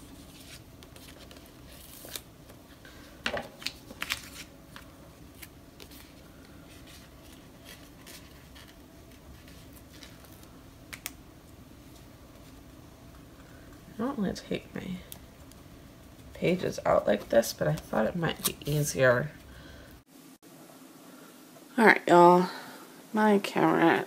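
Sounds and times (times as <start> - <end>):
soft paper rustling: 0.0 - 11.1, 17.0 - 19.5.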